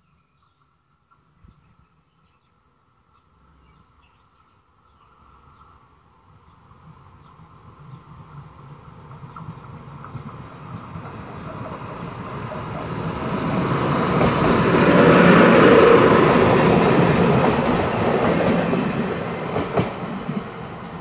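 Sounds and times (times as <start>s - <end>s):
diesel railcar engine passing: 4.9s - 21.0s
wheels clattering on rails: 8.3s - 18.9s.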